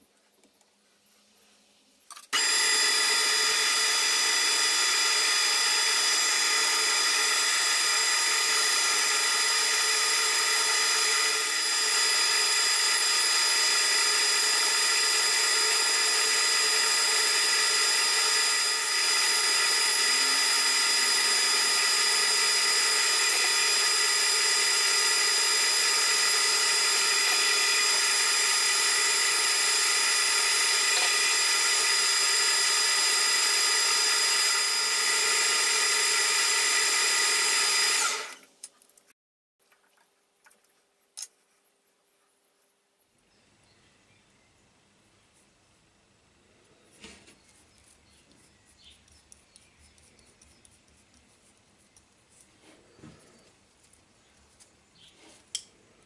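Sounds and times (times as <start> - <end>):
high gear whine: 2.3 - 38.4
milling machine spindle running: 2.4 - 38.4.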